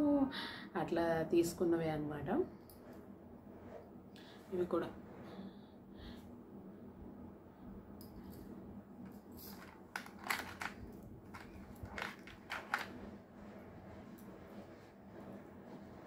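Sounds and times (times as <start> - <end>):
jewellery crinkles and clicks: 9.0 - 13.0.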